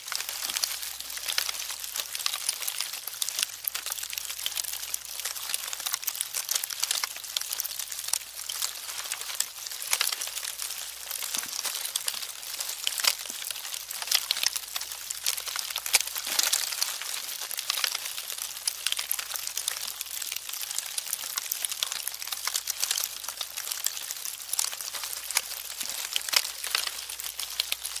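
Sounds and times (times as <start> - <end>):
termites crackling and ticking: 0.0 - 28.0.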